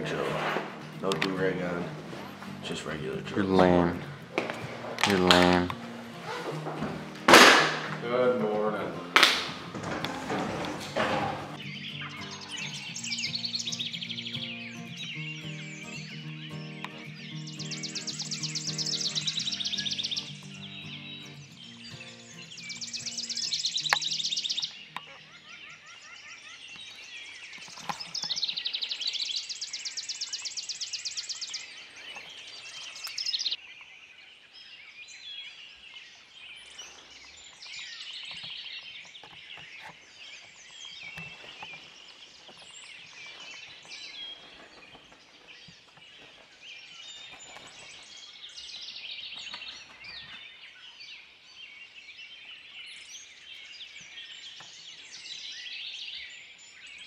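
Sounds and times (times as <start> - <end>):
birdsong chorus: 0.0 - 57.0
loud rapid bird trill: 11.5 - 33.6.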